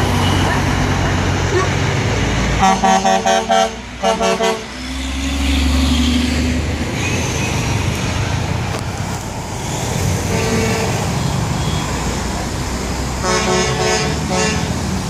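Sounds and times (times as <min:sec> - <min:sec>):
heavy truck engine droning: 0:00.0 - 0:15.0
road traffic noise: 0:00.0 - 0:15.0
truck air horn blasts: 0:02.6 - 0:04.8, 0:10.3 - 0:11.8, 0:13.2 - 0:14.9.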